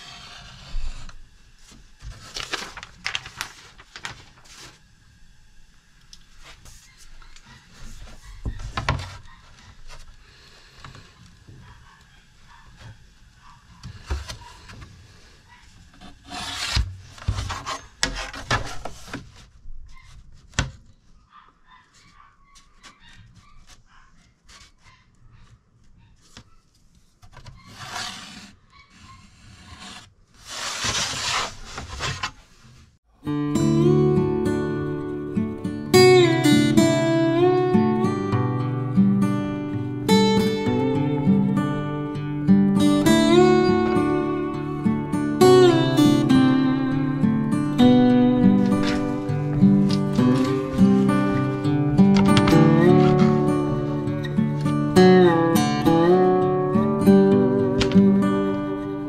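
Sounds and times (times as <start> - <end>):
scraping and rubbing: 0.0 - 4.9, 13.9 - 20.4, 27.3 - 33.0, 48.4 - 55.2.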